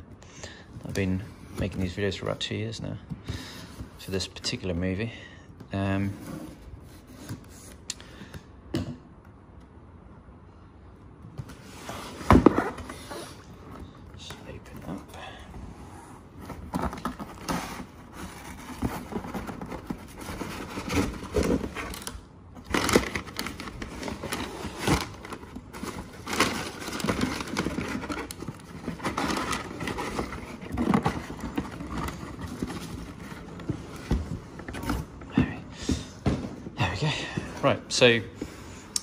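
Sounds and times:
cardboard and paper rustling: 0.8s - 2.5s, 16.2s - 38.6s.

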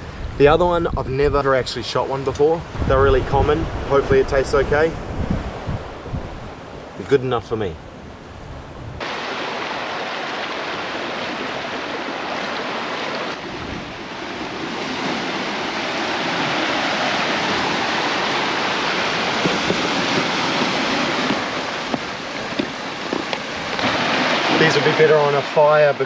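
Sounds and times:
ocean surf washing onto beach: 9.0s - 26.0s.

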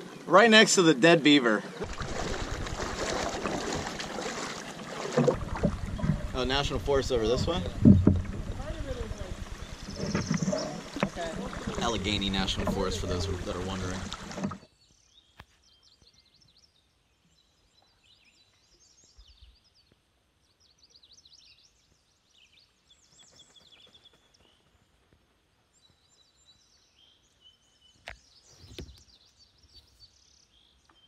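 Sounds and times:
songbirds chirping and trilling: 0.0s - 31.0s
soft thump: 7.4s - 9.0s.

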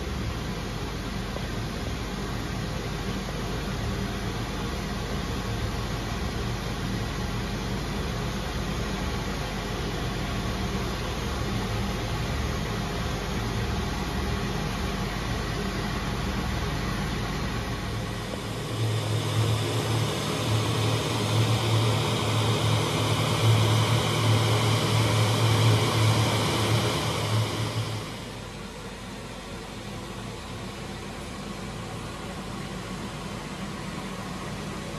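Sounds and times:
machine hum with hiss: 0.0s - 34.9s.

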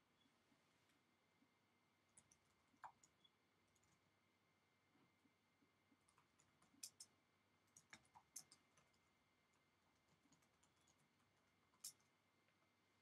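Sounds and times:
faint high hum: 0.0s - 13.0s.

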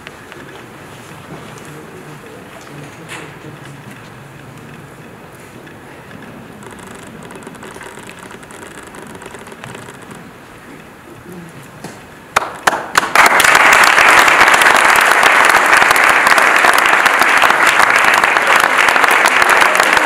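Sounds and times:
audience applauding: 12.4s - 20.0s.

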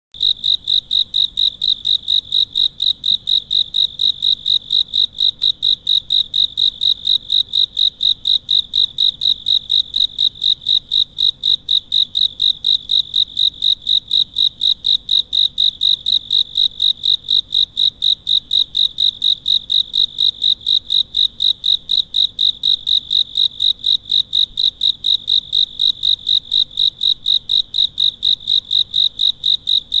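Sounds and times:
cricket chirping: 0.2s - 30.0s.

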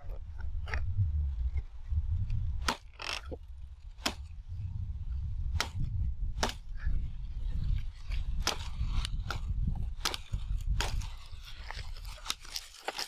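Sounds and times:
steady low rumble: 0.0s - 12.4s
machete chopping sugarcane: 2.6s - 3.2s, 4.0s - 4.3s, 5.5s - 6.7s, 8.4s - 11.2s.

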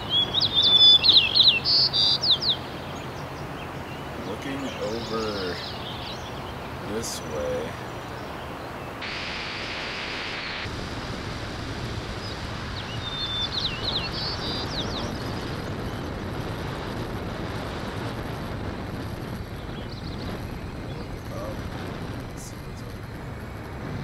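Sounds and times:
short high bird chirps: 0.0s - 2.8s, 12.8s - 15.2s
wind buffeting microphone: 0.0s - 24.0s.

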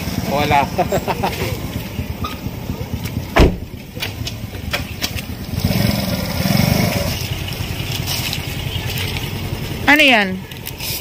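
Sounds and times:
small motorcycle engine running: 0.0s - 11.0s
sharp loud thump: 3.2s - 3.8s.

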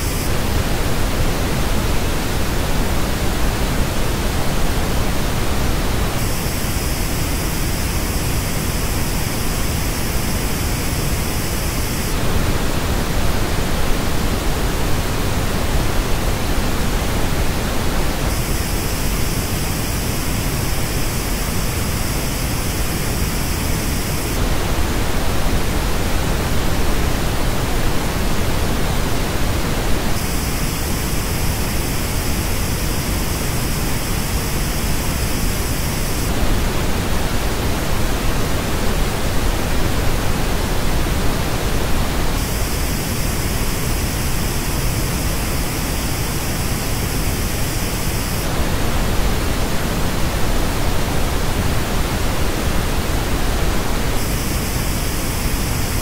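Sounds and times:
pink noise test signal: 0.0s - 56.0s.

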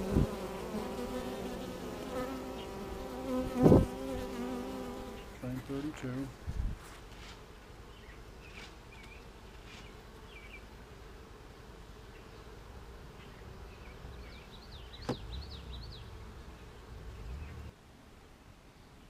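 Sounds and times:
honey bees buzzing: 0.0s - 6.4s.

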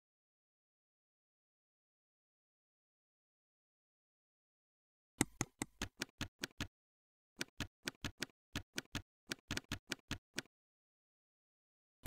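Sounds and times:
keyboard keystrokes clicking: 5.2s - 6.7s, 7.4s - 10.5s.

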